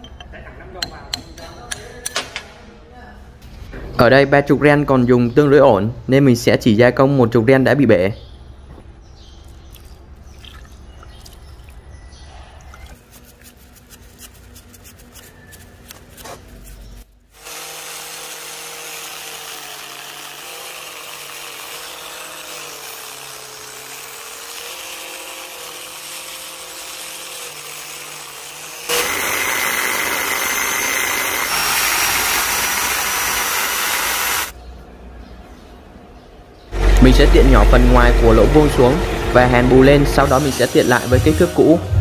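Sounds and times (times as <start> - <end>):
brush scrubbing: 13.0 - 17.1
angle grinder grinding metal: 17.4 - 34.5, 36.7 - 42.0.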